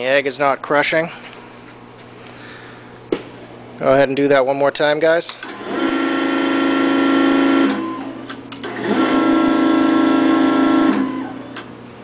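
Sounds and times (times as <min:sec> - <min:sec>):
motor and pump whining: 0:05.4 - 0:12.0.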